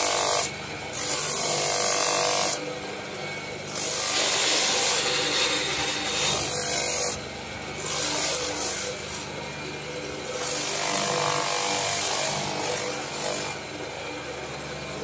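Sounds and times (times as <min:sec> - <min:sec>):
sanding drum motor hum: 0:00.0 - 0:15.0.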